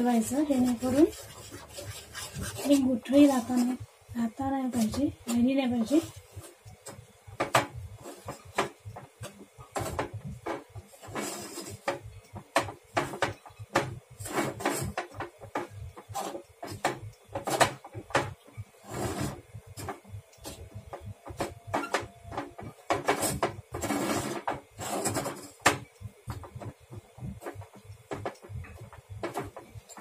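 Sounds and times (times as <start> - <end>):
metal spoon scraping steel pot: 0.5 - 3.8.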